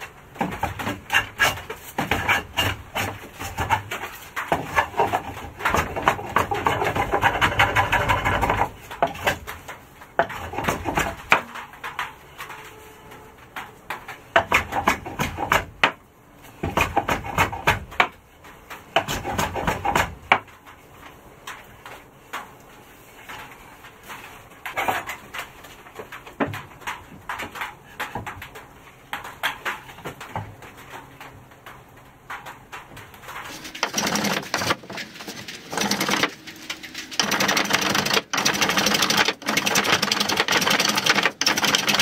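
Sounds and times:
hand tool scraping wood: 0.4s - 9.4s, 33.5s - 42.0s
knocks and clicks: 24.6s - 42.0s.

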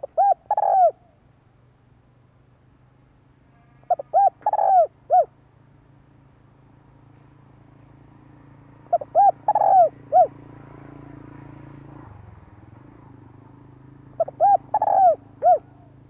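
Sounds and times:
dove cooing: 0.0s - 1.2s, 3.9s - 5.3s, 8.9s - 10.4s, 14.0s - 16.0s.

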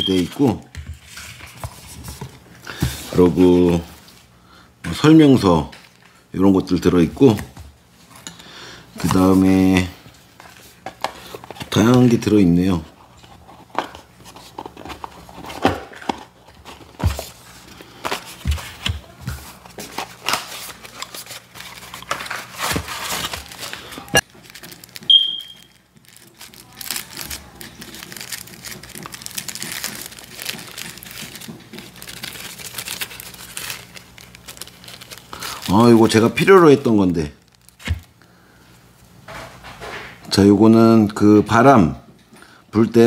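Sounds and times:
packing material crinkling: 13.2s - 38.3s.

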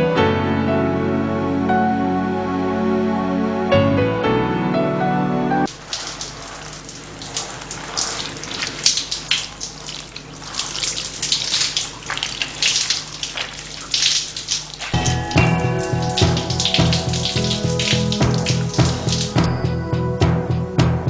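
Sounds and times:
water running and splashing: 5.7s - 19.5s.

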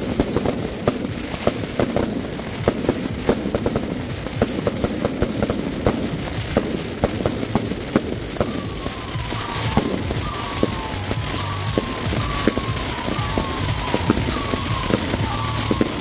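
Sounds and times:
firecrackers banging: 0.0s - 16.0s
fireworks hiss and crackle: 0.0s - 16.0s
falling whistle tone: 8.1s - 16.0s.

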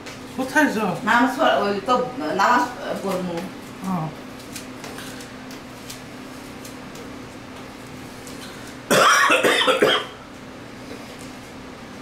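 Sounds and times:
man coughing: 8.9s - 10.2s.

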